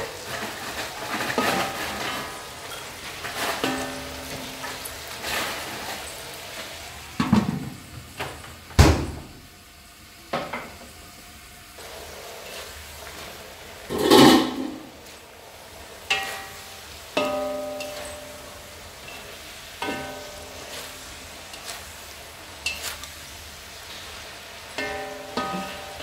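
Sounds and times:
food sizzling: 0.0 - 26.0
metal spatula scraping wok: 0.1 - 6.6, 11.8 - 26.0.

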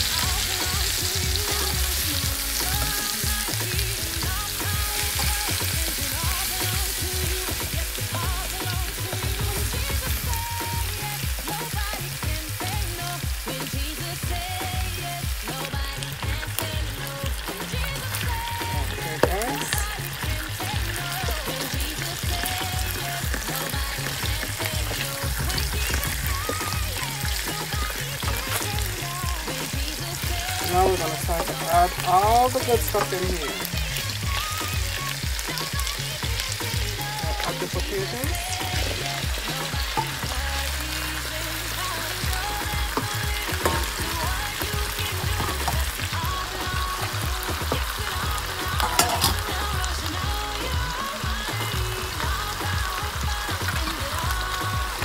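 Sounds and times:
background music with bass: 0.0 - 55.0
meat sizzling in a pan: 0.0 - 55.0
metal tongs turning meat: 15.6 - 34.5, 42.3 - 49.8.

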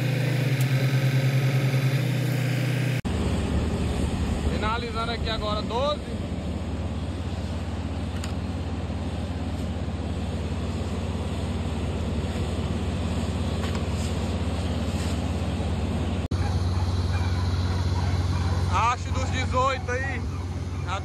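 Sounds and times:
drilling rig engine hum: 0.0 - 21.0.

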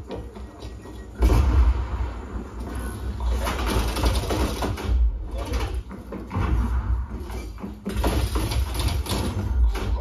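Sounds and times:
sharp gunshot bangs: 1.2 - 2.2.

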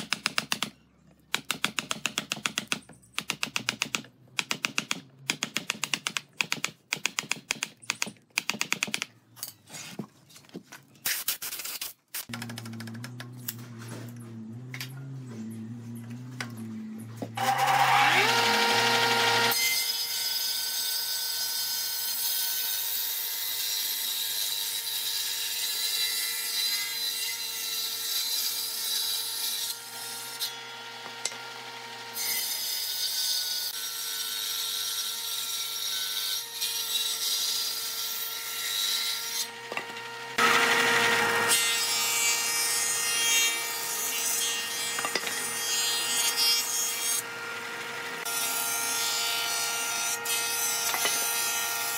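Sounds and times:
saw and planer cutting wood: 12.3 - 51.9
woodworking machine whine: 12.4 - 19.6, 29.8 - 32.2, 39.4 - 43.9, 44.7 - 51.9.

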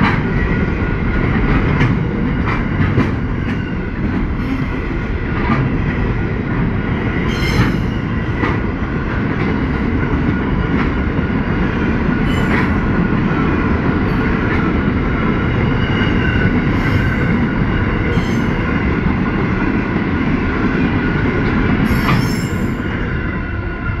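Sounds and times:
sharp clacks at rail joints: 0.0 - 4.4, 5.3 - 6.0, 12.2 - 12.8
train wheels rumbling on rail: 0.0 - 24.0.

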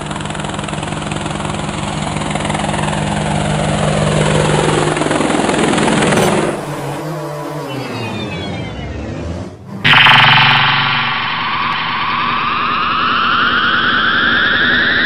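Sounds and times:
drone propeller buzz: 0.0 - 15.0
falling sweep: 7.6 - 15.0.

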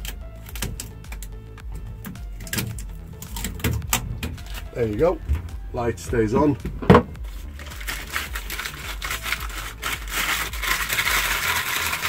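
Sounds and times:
plastic crumpling and crinkling: 7.2 - 12.0.

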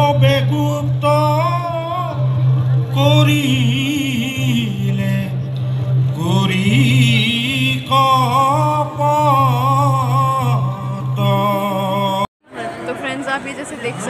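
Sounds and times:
low drone: 0.0 - 12.7
person singing folk song: 6.1 - 12.3.

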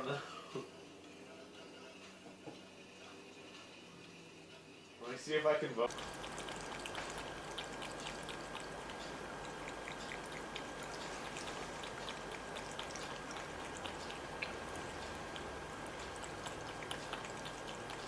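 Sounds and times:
cat lapping water: 5.8 - 18.0.

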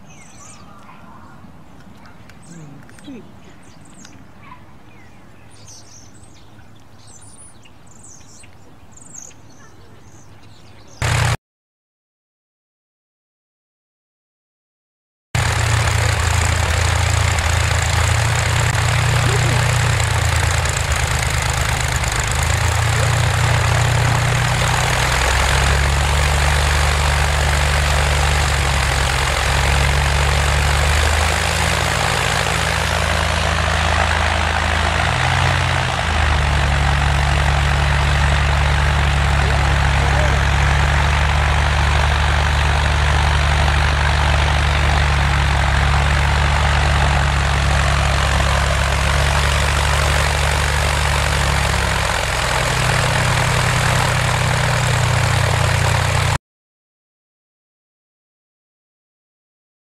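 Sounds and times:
propeller plane engine drone: 0.0 - 11.4, 15.4 - 56.4
propeller rushing: 11.0 - 11.4, 15.4 - 56.4.

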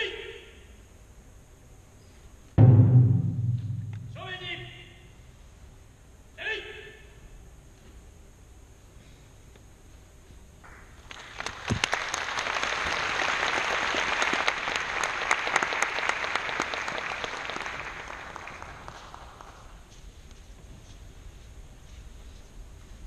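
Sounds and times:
audience applauding: 10.7 - 19.9.

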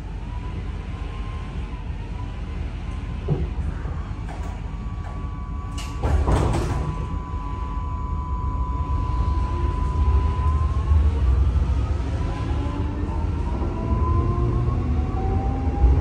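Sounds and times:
electrical whine: 0.0 - 16.0
tram doors sliding shut: 2.8 - 7.8
low rumble: 7.0 - 16.0.

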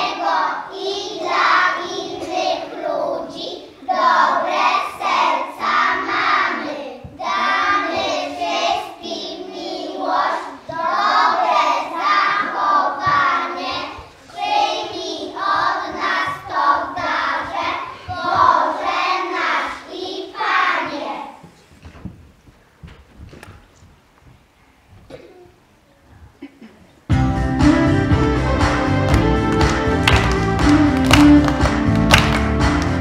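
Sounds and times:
children singing: 0.0 - 21.5.

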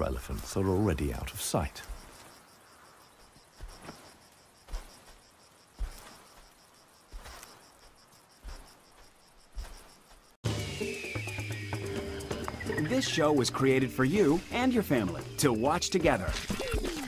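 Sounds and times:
insects chirping: 0.0 - 17.0
soft thud or rustle: 7.1 - 10.2
music jingle: 10.4 - 16.2.

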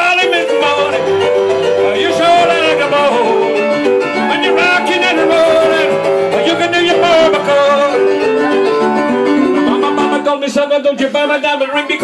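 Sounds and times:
rock and roll piano: 0.0 - 10.8.

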